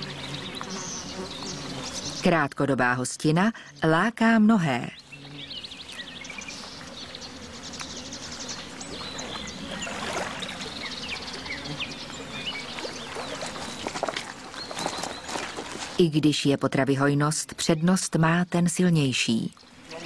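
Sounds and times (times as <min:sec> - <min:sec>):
small birds chirping: 0:00.0 - 0:16.1, 0:17.1 - 0:20.0
water washing: 0:08.9 - 0:10.8, 0:12.7 - 0:16.0.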